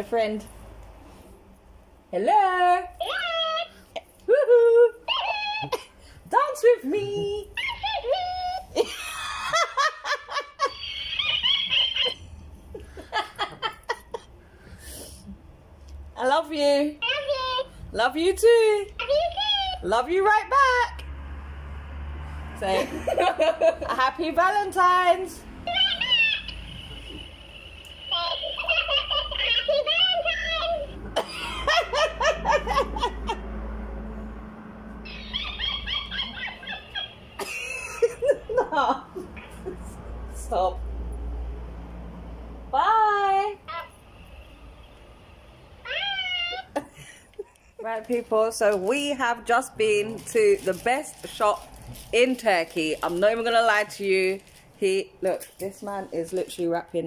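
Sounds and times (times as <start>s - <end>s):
woman laughing: 8.6s - 14.3s, 22.7s - 24.0s, 31.1s - 33.4s, 35.4s - 39.9s, 46.6s - 47.6s
high-pitched sped-up toy laughter: 10.4s - 12.3s, 25.6s - 27.0s, 27.9s - 33.3s, 35.0s - 38.6s.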